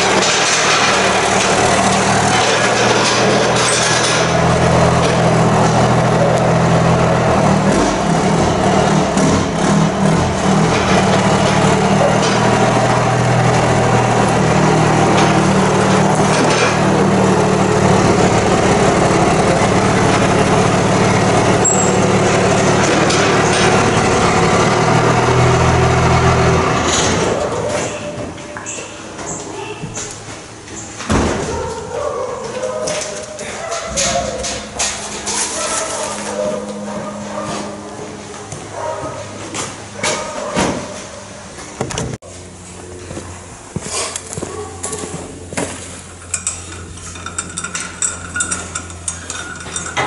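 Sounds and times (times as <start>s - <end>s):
pickup truck engine running: 0.0s - 27.8s, 33.9s - 40.6s.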